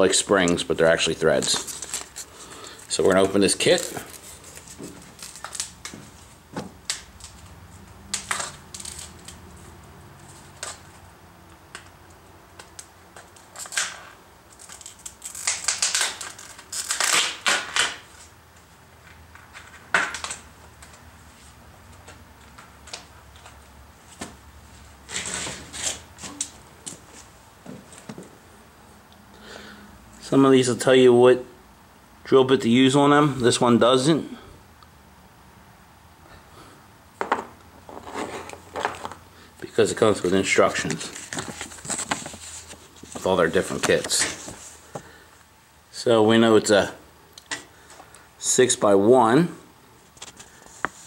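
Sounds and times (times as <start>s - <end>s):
rustling: 1.0s - 11.1s, 37.7s - 39.3s, 40.0s - 45.4s.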